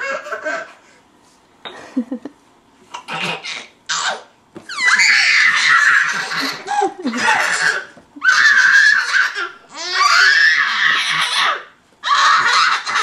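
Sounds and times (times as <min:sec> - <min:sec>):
baby laughing: 0:00.0 - 0:00.8, 0:02.9 - 0:13.0.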